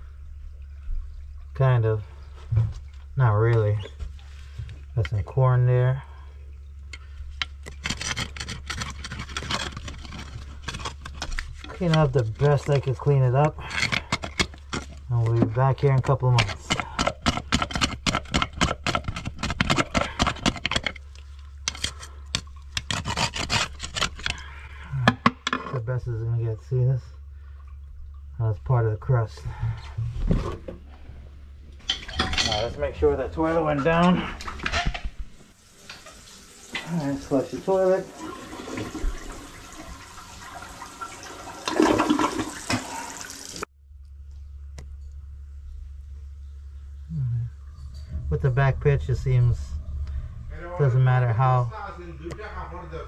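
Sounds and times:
steady low hum: 0:00.0 - 0:35.6, 0:43.6 - 0:53.0
rapid clicking and scraping: 0:06.9 - 0:24.5
toilet flushing: 0:35.6 - 0:43.7.

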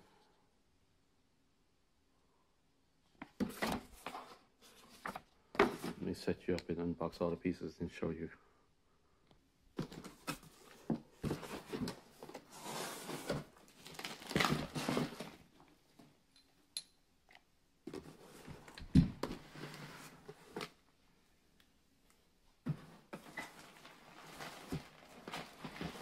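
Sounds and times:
plastic packing crinkling: 0:13.6 - 0:15.3.

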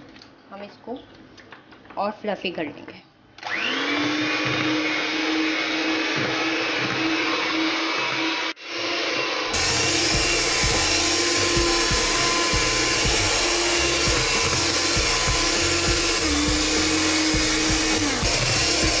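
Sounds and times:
electric hand mixer whipping cream: 0:03.4 - 0:19.0.

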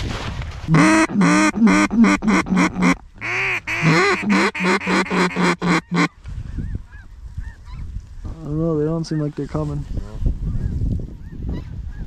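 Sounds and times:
duck call quacks: 0:00.7 - 0:06.1.

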